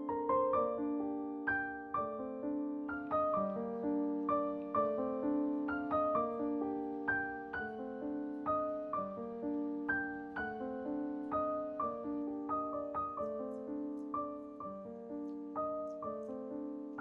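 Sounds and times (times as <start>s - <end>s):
piano melody: 0.0s - 17.0s.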